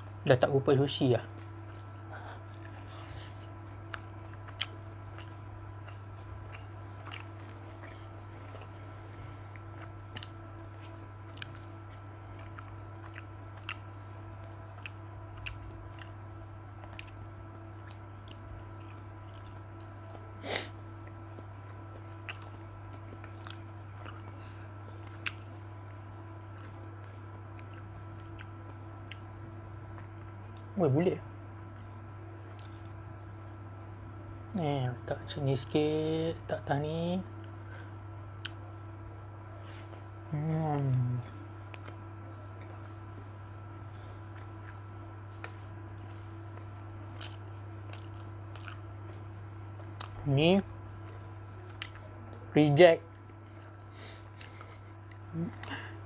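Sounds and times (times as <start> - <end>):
steady low hum: 0.0 - 56.0
close chewing and mouth clicks: 1.3 - 30.7, 31.6 - 33.0, 38.3 - 38.7, 40.8 - 50.2, 50.9 - 52.5, 53.1 - 55.9.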